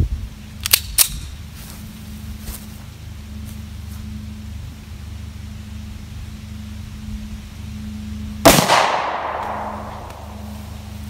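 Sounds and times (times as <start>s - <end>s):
pistol shot with echo: 8.4s - 10.2s.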